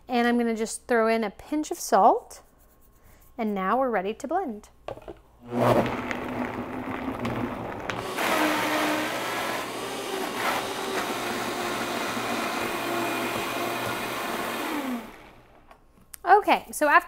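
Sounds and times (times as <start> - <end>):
blender blending: 5.4 - 15.7.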